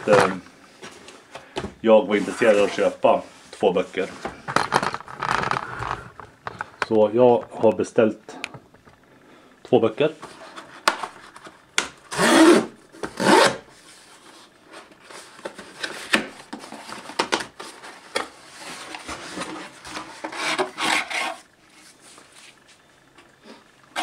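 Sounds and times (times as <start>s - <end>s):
packaging scraped and torn: 19.0s - 21.5s.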